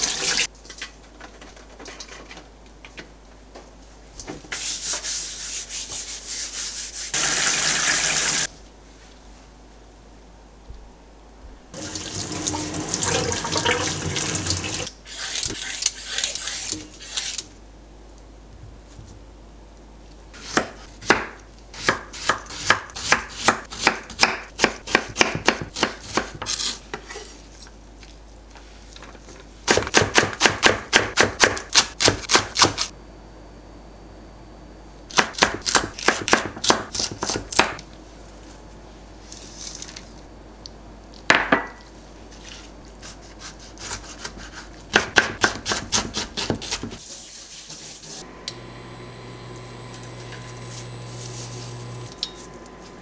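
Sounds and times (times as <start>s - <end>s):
knife chopping on wooden board: 20.4s - 26.4s, 43.8s - 47.0s
faint steady hum: 32.9s - 53.0s.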